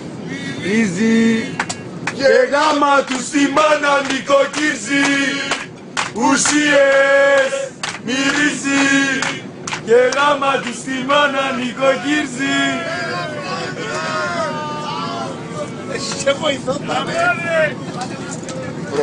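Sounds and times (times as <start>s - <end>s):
men singing a chant: 0.7s - 14.5s.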